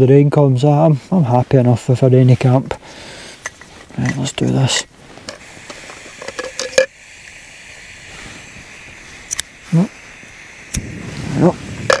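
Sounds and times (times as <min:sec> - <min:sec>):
gas stove burner hissing: 0:00.4 - 0:12.0
sharp clicks: 0:09.3 - 0:09.5.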